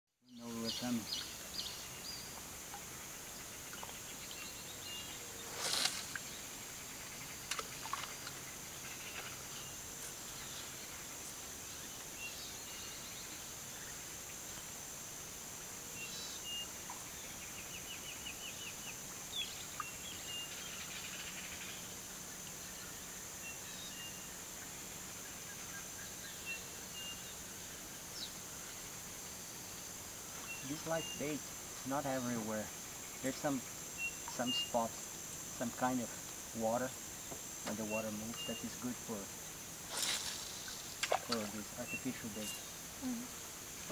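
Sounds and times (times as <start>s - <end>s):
steady high-pitched hiss: 0.2s - 43.9s
faint clicks: 7.4s - 8.4s
bird chirps: 30.4s - 31.4s, 33.1s - 34.9s, 37.6s - 38.9s, 40.2s - 43.3s.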